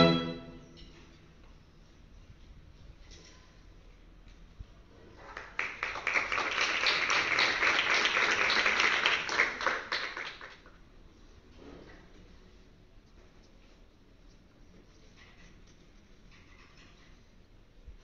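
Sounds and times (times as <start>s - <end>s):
crowd applauding: 5.2s - 10.7s.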